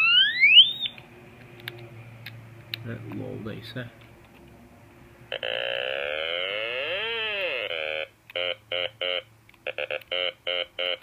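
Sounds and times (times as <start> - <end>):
buzzy electronic toy instrument notes: 0.0 - 1.0, 5.3 - 11.0.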